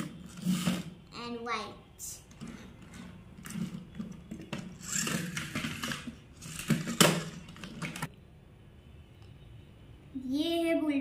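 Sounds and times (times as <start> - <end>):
plastic toy vehicles on a tabletop: 0.0 - 1.0, 2.1 - 8.2.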